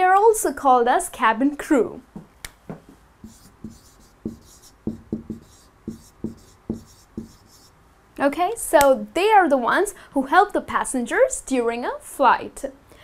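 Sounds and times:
marker writing on whiteboard: 2.7 - 7.8.

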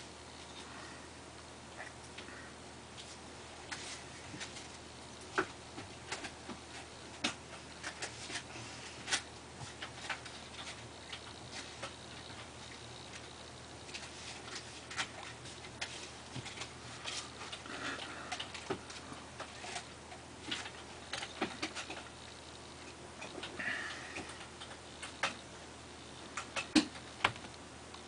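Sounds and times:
faint clicks and taps: 26.3 - 28.0.

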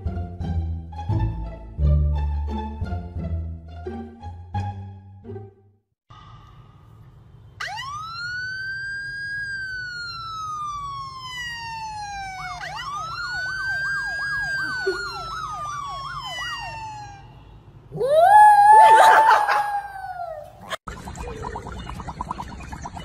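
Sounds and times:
siren wailing: 7.6 - 20.6
siren yelping: 7.6 - 20.8.

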